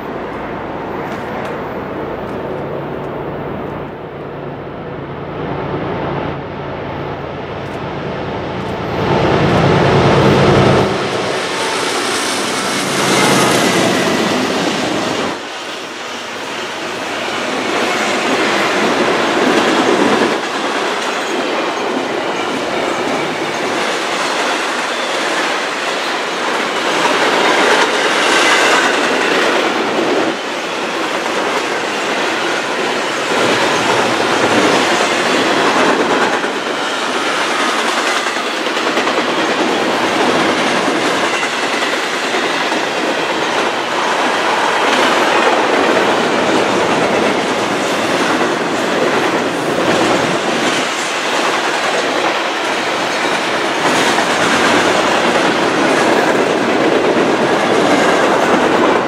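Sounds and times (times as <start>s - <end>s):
diesel locomotives passing: 0.0s - 59.0s
train wheels clickety-clack: 8.5s - 59.0s.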